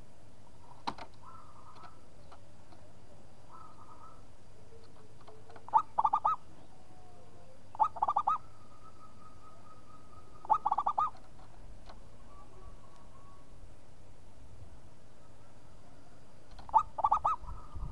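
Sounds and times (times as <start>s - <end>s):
dove cooing: 1.2s - 2.1s, 3.5s - 11.3s, 12.0s - 13.6s, 15.2s - 17.9s.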